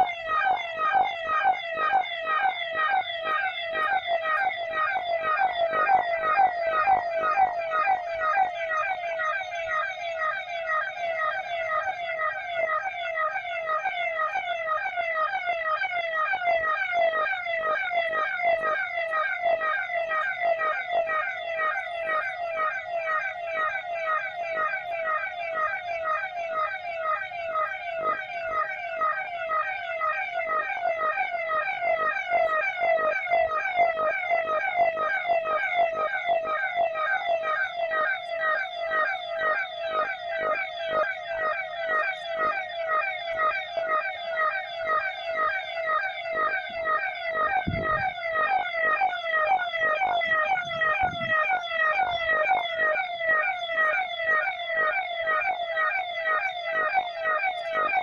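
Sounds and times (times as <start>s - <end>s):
electronic siren warbling: 0.0s - 58.0s.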